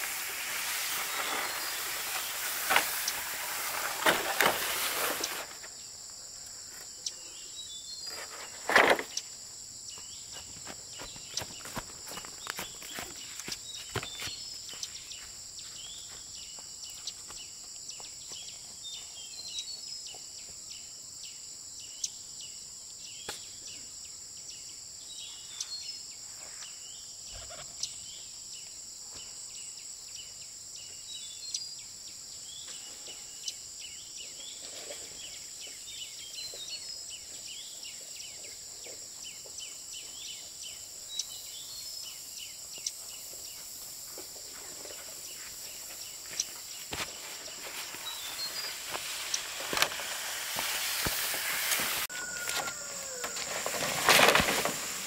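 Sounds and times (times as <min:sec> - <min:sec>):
insects buzzing: 0:00.0 - 0:55.0
bird chirps: 0:45.3 - 0:50.0.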